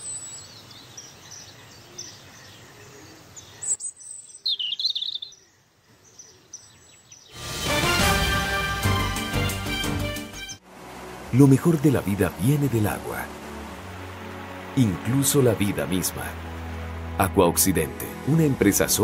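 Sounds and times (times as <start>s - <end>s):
birds chirping: 0.0s - 7.4s, 10.2s - 19.0s
loud music: 7.4s - 10.6s.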